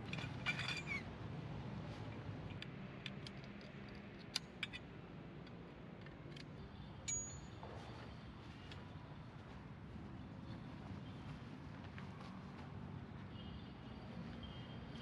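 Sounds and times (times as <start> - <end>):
metal poles clinking together: 7.1 - 7.5.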